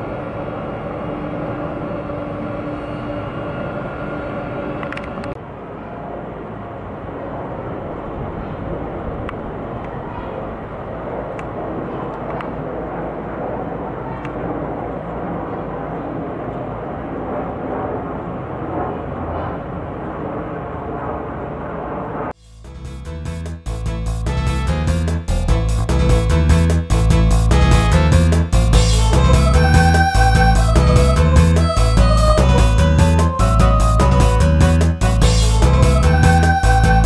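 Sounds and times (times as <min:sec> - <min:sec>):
jet engine roar: 0:00.0 - 0:22.4
humming engine tone: 0:00.0 - 0:37.0.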